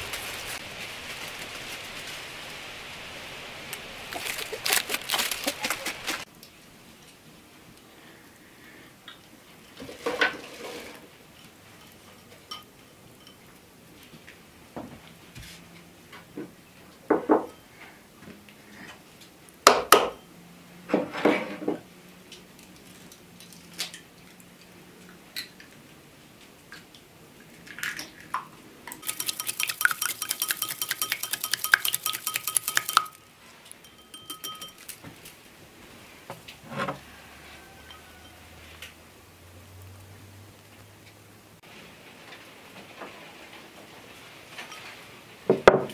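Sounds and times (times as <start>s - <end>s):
eggs beaten in bowl clicking: 29.0s - 33.2s, 33.8s - 35.0s
sharp knocks against bowls: 29.1s - 33.2s, 33.8s - 34.8s.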